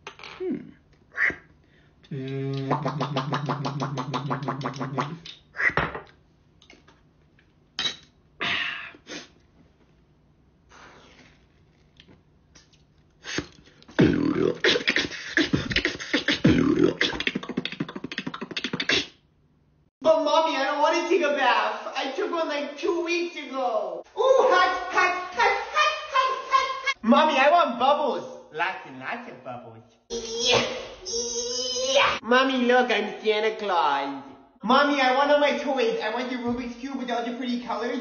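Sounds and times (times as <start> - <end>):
man beatboxing: 2.1 - 5.4, 13.3 - 19.2.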